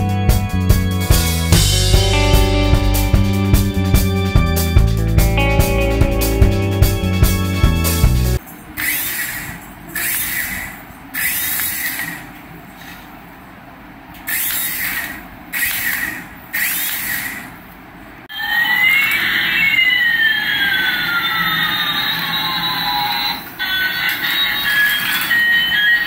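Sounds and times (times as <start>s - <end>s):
toy helicopter rotor whirring: 8.8s - 12.3s, 14.3s - 17.6s, 18.4s - 26.0s
electronic toy plane sound effects: 18.3s - 26.0s.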